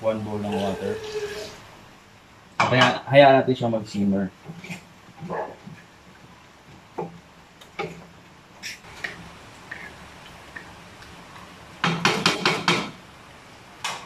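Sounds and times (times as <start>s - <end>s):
spatula knocking on metal wok: 11.8s - 13.0s.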